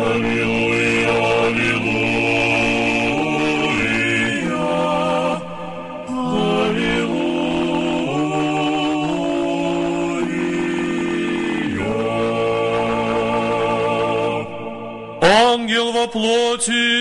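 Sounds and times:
choir singing a slow chant: 0:00.0 - 0:15.8.

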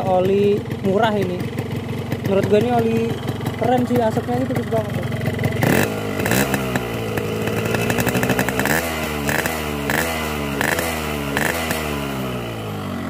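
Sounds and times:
two-stroke motorcycle engine revving: 0:00.0 - 0:13.0.

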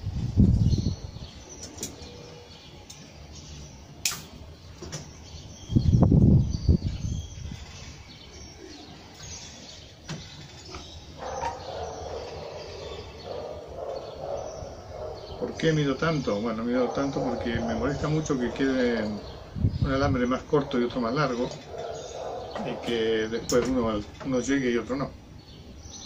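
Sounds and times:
birds chirping: 0:00.0 - 0:26.0
sharp click: 0:04.0 - 0:05.0.

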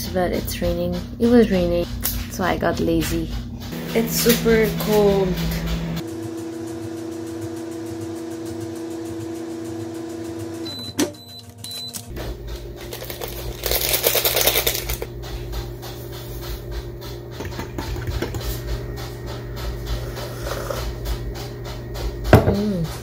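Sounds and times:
microwave oven hum: 0:00.0 - 0:23.0
sachet tearing and rustling: 0:12.6 - 0:15.1.

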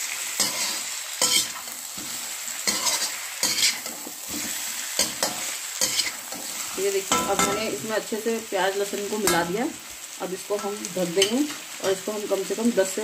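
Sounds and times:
chicken sizzling in hot oil: 0:00.0 - 0:13.0
metal spoon scraping a pan: 0:00.4 - 0:07.8.

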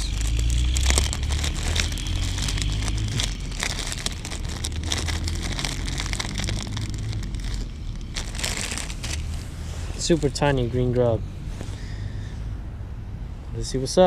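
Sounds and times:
plastic bag crinkling: 0:00.0 - 0:10.3
low rumble: 0:00.0 - 0:13.5.

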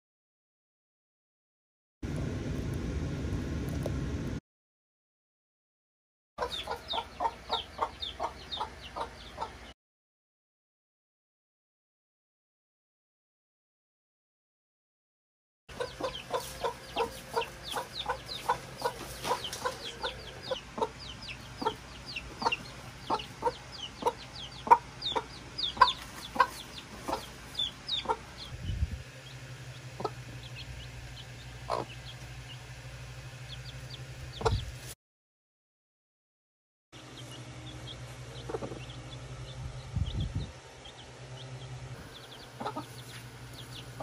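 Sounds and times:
low steady hum: 0:02.0 - 0:04.4, 0:15.7 - 0:35.0, 0:37.0 - 0:44.0
chicks peeping: 0:06.4 - 0:09.8, 0:15.7 - 0:35.0, 0:37.0 - 0:44.0
hen clucking: 0:06.4 - 0:09.8, 0:15.7 - 0:28.6, 0:29.2 - 0:34.9, 0:37.1 - 0:44.0.

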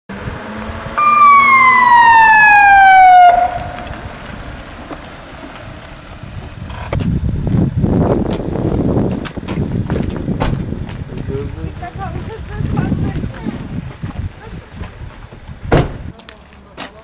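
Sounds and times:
rough rumbling noise: 0:00.1 - 0:16.2
siren wailing: 0:01.0 - 0:04.2.

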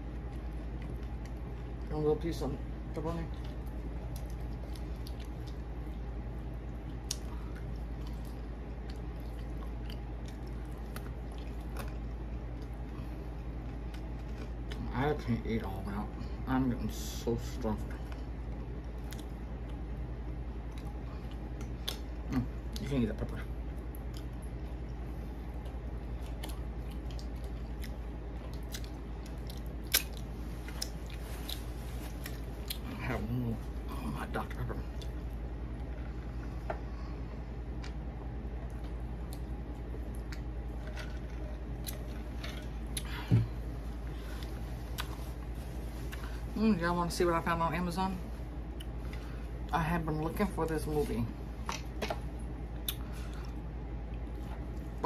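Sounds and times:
person chewing food: 0:00.0 - 0:01.9, 0:03.3 - 0:14.9, 0:18.0 - 0:22.9, 0:23.6 - 0:46.5, 0:48.5 - 0:49.7, 0:51.6 - 0:55.0
steady low hum: 0:00.0 - 0:55.0
chewing food clicks: 0:38.6 - 0:39.5.

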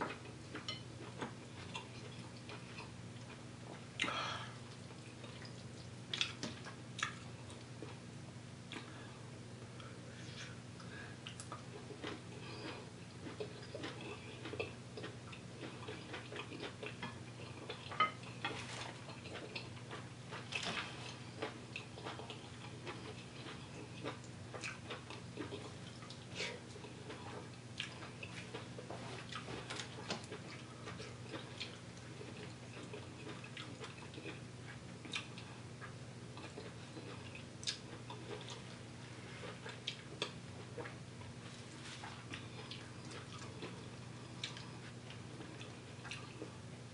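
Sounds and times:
faint low hum: 0:00.0 - 0:46.9
chewing and lip smacks: 0:04.7 - 0:08.0, 0:10.8 - 0:38.8, 0:39.4 - 0:41.0, 0:41.8 - 0:46.6.

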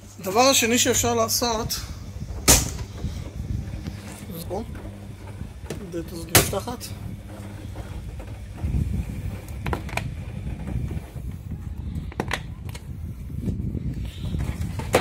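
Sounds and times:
plastic box scraping out: 0:01.9 - 0:11.5.

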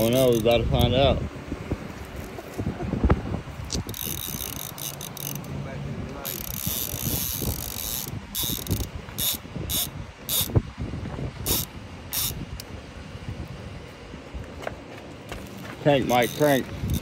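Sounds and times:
fishing reel drag buzzing: 0:03.7 - 0:05.6, 0:06.2 - 0:10.6, 0:11.4 - 0:12.6, 0:16.0 - 0:17.0.

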